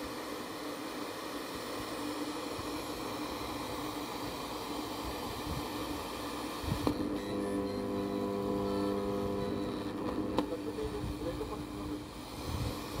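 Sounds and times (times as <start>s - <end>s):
radio static hiss: 0.0s - 13.0s
low steady hum: 6.7s - 13.0s.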